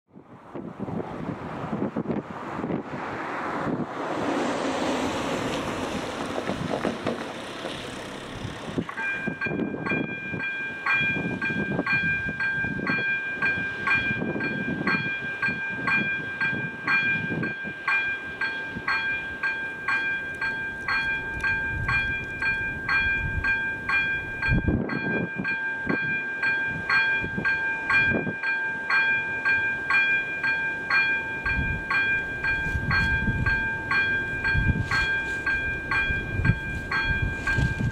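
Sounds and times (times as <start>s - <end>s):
level crossing warning bell ringing: 8.0s - 37.9s.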